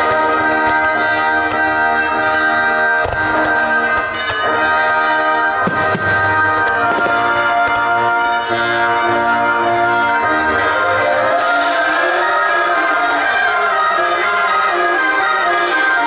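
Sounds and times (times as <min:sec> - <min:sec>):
orchestral music with brass and drums: 0:00.0 - 0:16.0
fireworks bangs: 0:02.2 - 0:08.3.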